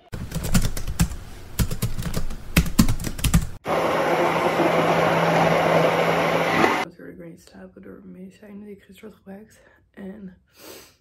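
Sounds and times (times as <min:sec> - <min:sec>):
blender humming: 0:03.6 - 0:06.8.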